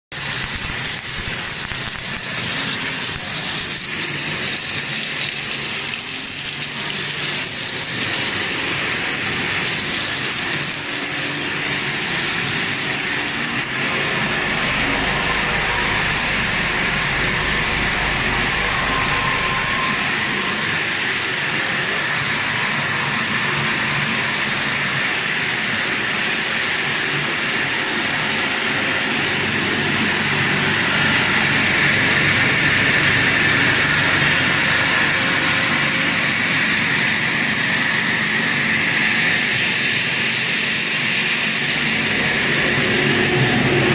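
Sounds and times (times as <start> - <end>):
rushing hiss of machinery: 0.2 - 43.9
low hum: 7.0 - 24.4.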